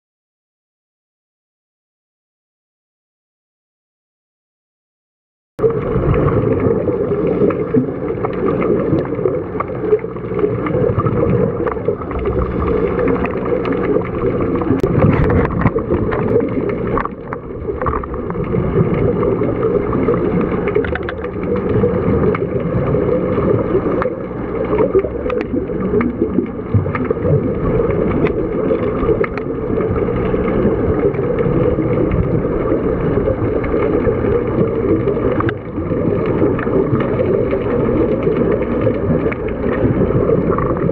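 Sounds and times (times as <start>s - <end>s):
faint hum: 5.6s - 40.9s
muffled underwater rumble: 5.6s - 40.9s
small clicks: 20.4s - 22.4s, 35.4s - 35.6s.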